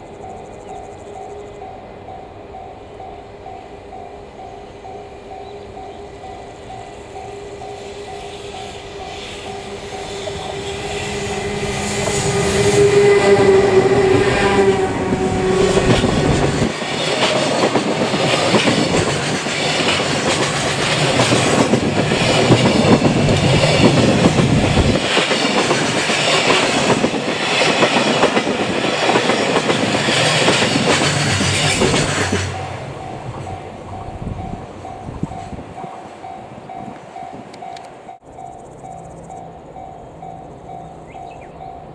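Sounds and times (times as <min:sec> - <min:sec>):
level-crossing alarm ringing: 0:00.0 - 0:15.7, 0:31.9 - 0:41.9
electric locomotive motor hum: 0:00.0 - 0:41.9
wagon wheels clicking over rail joints: 0:15.8 - 0:32.7.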